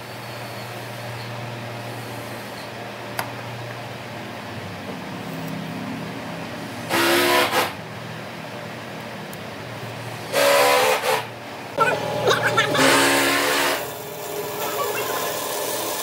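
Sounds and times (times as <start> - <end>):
horn-like blast: 12.7 - 13.9.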